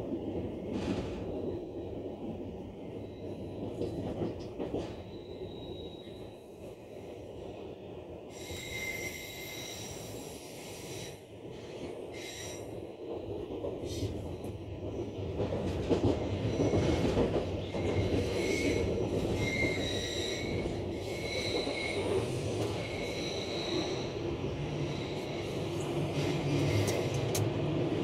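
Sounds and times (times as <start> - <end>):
train wagons rumbling on rails: 0.0 - 28.0
high-pitched wheel squeal: 8.4 - 10.2, 18.2 - 22.2, 22.8 - 24.1.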